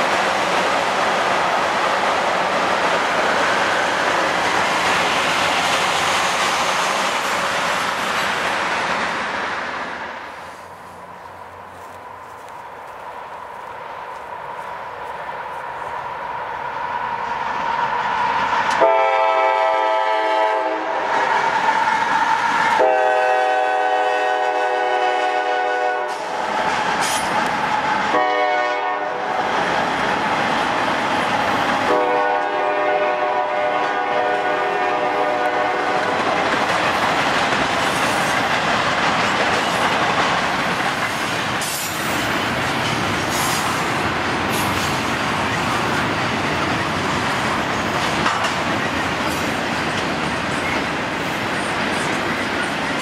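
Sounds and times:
locomotive air horn blasts: 0:18.8 - 0:21.0, 0:22.8 - 0:26.3, 0:28.1 - 0:29.2, 0:31.9 - 0:36.2
train wheels clattering: 0:25.4 - 0:28.6, 0:29.4 - 0:53.0.

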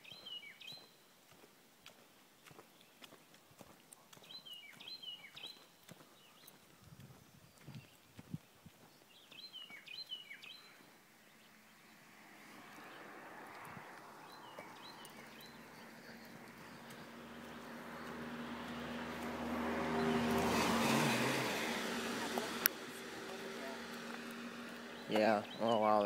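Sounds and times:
songbird chirping: 0:00.0 - 0:26.0
car approaching: 0:10.5 - 0:26.0.

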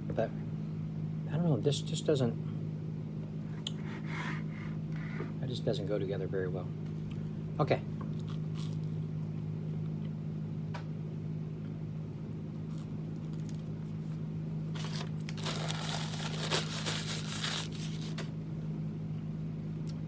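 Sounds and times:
steady low hum: 0:00.0 - 0:20.0
paper napkin crinkling: 0:14.7 - 0:18.3.

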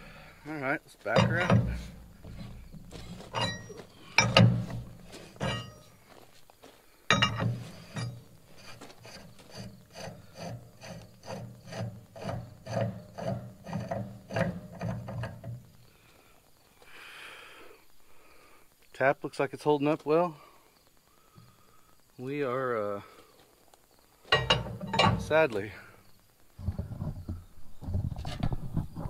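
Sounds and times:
metal tap scraping in threads: 0:01.2 - 0:05.8, 0:07.1 - 0:15.7, 0:24.3 - 0:25.5.

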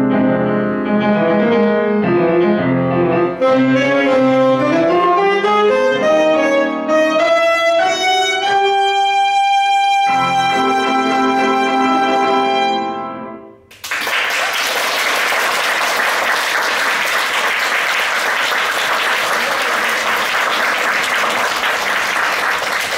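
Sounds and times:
saxophone and piano chord: 0:02.2 - 0:13.5
audience applauding: 0:13.7 - 0:22.9.

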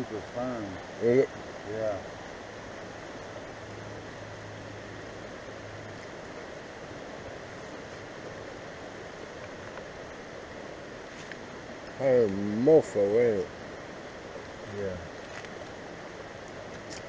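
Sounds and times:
rushing outdoor background noise: 0:00.0 - 0:17.0.

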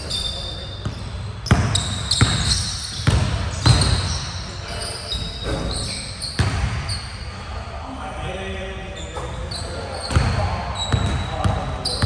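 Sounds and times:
sneaker squeaks: 0:00.0 - 0:07.5, 0:08.9 - 0:12.0
basketball bouncing on wooden floor: 0:00.8 - 0:04.1, 0:06.4 - 0:06.8, 0:10.1 - 0:11.6.

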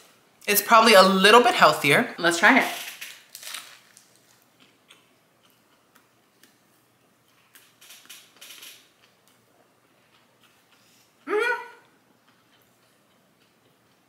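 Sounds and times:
person chewing food: 0:03.1 - 0:14.0.

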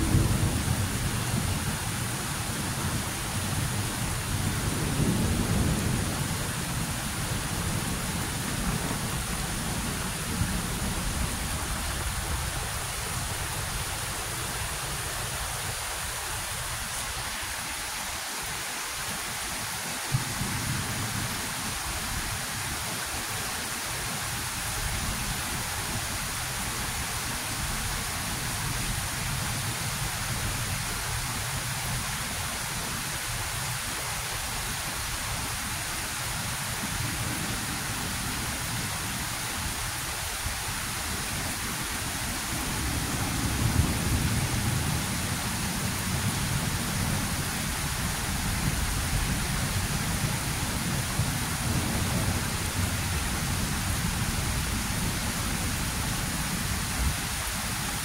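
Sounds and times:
thunder rumbling: 0:00.0 - 0:12.4
heavy rain: 0:00.0 - 0:58.0.

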